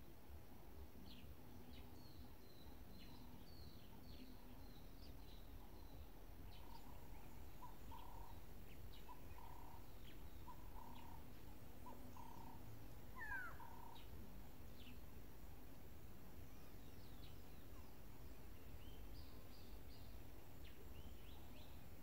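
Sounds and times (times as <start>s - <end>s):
gliding bird call: 13.2s - 13.9s.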